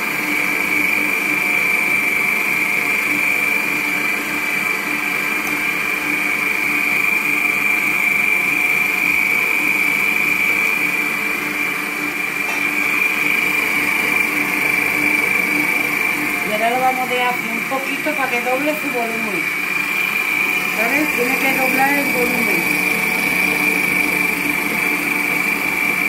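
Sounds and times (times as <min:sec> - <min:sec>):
stand mixer whining: 0:00.0 - 0:26.0.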